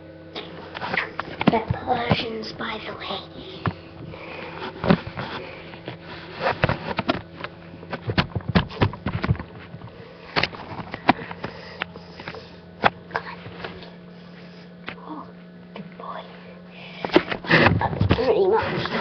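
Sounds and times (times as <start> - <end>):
low electrical hum: 0.0 - 19.0
handling clicks and rustles: 3.5 - 13.9.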